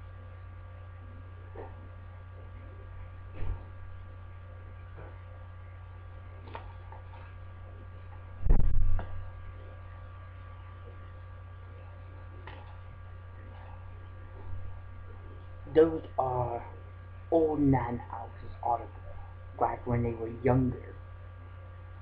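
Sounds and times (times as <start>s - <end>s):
electrical mains hum: 0.0s - 22.0s.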